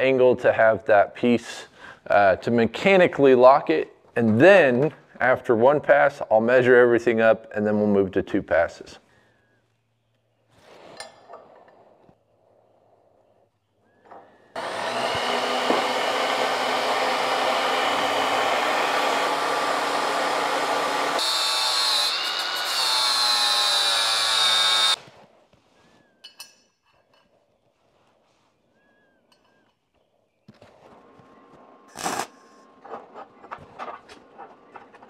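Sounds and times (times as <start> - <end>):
angle grinder cutting steel: 14.6 - 25.0.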